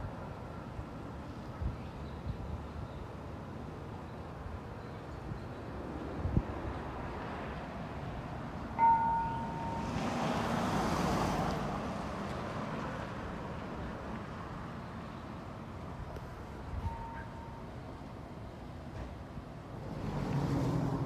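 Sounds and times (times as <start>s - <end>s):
vehicle passing: 9.0s - 13.4s, 19.8s - 21.0s.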